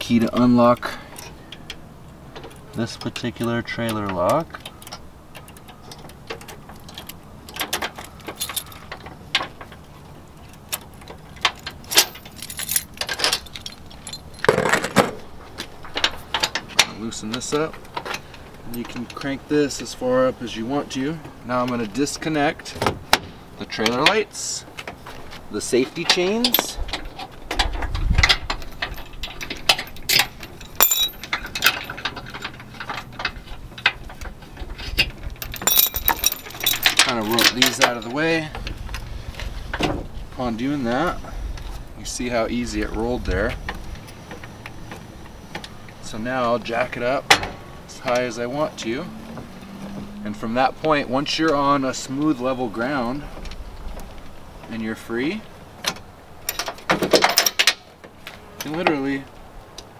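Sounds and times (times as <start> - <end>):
metallic lock clicks and rattles: 0.0 - 19.4, 26.0 - 39.1, 55.8 - 57.9
keys jangling: 6.8 - 9.0, 11.4 - 14.8, 28.4 - 33.8, 34.8 - 38.1.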